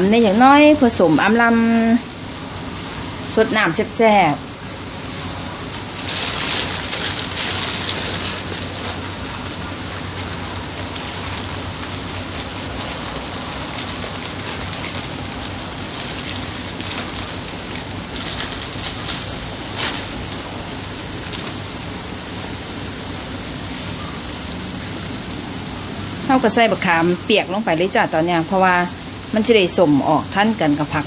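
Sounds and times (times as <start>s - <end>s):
curry simmering and bubbling: 5.1s - 23.6s.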